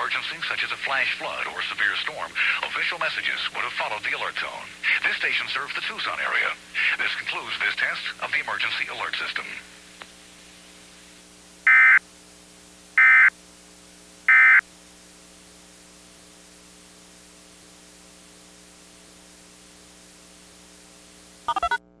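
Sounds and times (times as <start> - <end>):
steady hum with faint hiss: 0.0 - 21.6
digital data tone bursts: 21.5 - 21.8.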